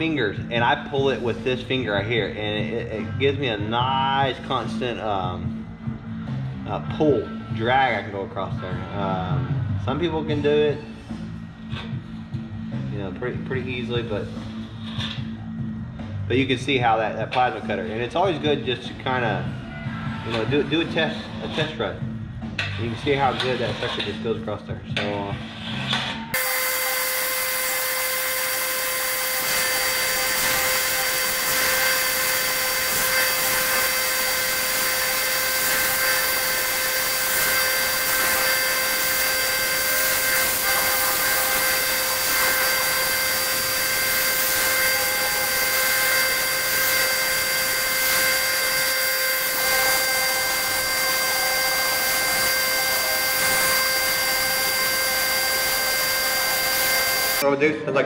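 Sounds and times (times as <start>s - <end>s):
high whine: 26.2s - 57.5s
plasma cutter hissing: 26.4s - 57.4s.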